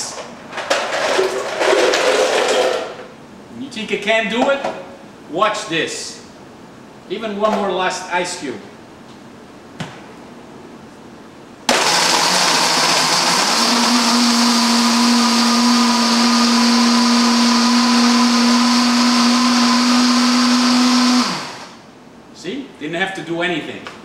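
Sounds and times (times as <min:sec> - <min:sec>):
blender crushing ice: 0:00.6 - 0:02.9, 0:11.7 - 0:21.8
blender motor hum: 0:11.7 - 0:21.8.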